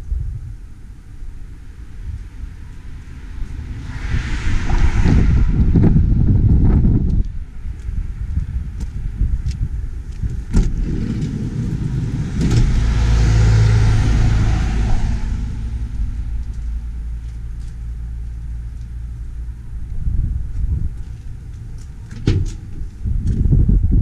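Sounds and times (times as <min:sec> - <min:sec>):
wind rumble on microphone: 0:00.0 - 0:24.0
vehicle passing by: 0:01.8 - 0:07.2, 0:10.6 - 0:20.8.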